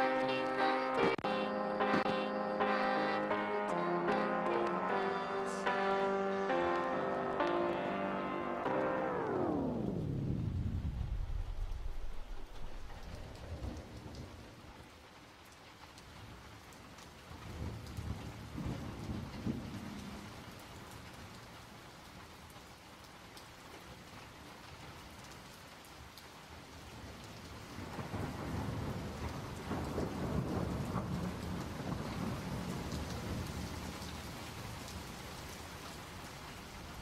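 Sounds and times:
steady rain-like hiss: 0.0 - 37.0
low rolling rumbles: 9.8 - 14.2.

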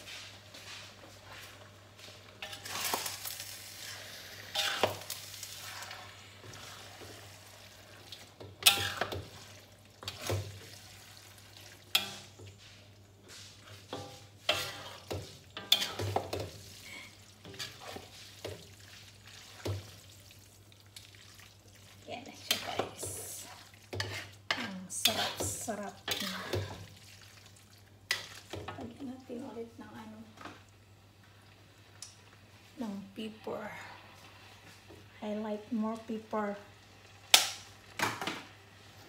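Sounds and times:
wooden spatula scraping a wok: 0.0 - 7.4, 8.5 - 20.0, 22.4 - 26.9
sauce sizzling: 0.0 - 39.0.

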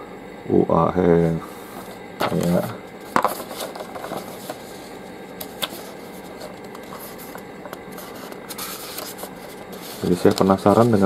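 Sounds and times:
paper pages rustling: 1.6 - 11.0
paper crinkles: 1.7 - 11.0.

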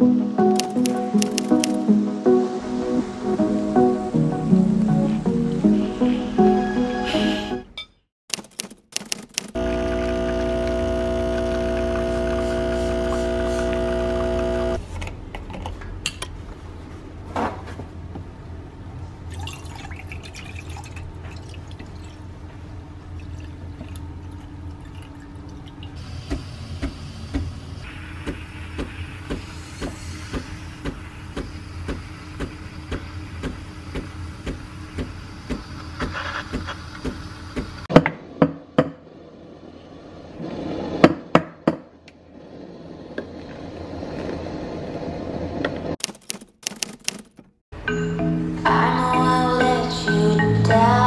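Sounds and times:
regular ticking: 0.6 - 1.8
espresso machine humming: 9.6 - 14.8
steam wand hissing: 26.0 - 37.8.

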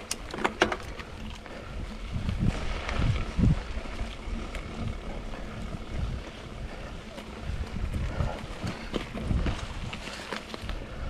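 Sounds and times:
rattling clicks: 0.0 - 1.1
bike tyres rumbling on dirt: 0.0 - 11.0
wind on microphone: 0.7 - 11.0.

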